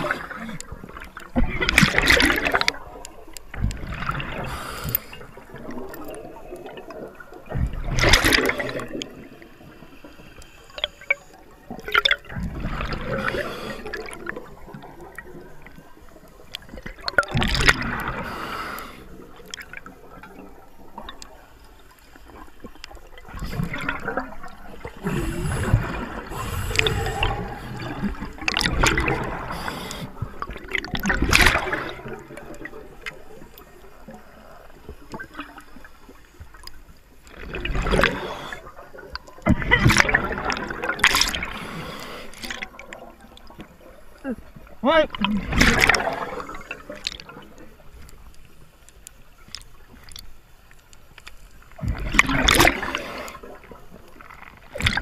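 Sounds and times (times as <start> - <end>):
diver's exhaled bubbles gurgling: 0.0 - 35.8, 37.2 - 48.1, 51.6 - 55.0
underwater water hiss: 4.0 - 6.8, 7.8 - 11.7, 12.6 - 15.4, 17.5 - 19.9, 21.7 - 36.4, 37.5 - 39.0, 40.4 - 43.0, 52.0 - 54.2.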